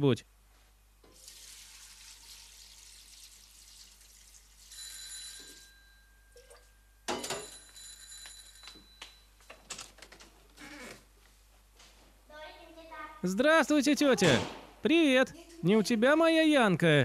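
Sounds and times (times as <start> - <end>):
water splashing into pot: 1.1 - 4.7.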